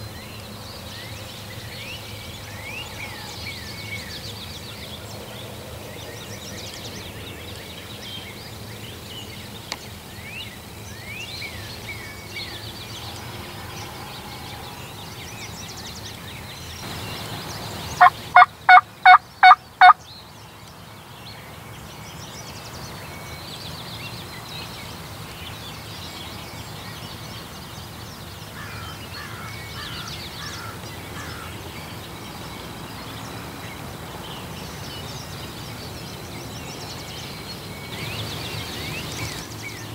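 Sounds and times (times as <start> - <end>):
faint songbird chirps: 0.0 - 39.9
wild turkey calling: 17.9 - 20.0.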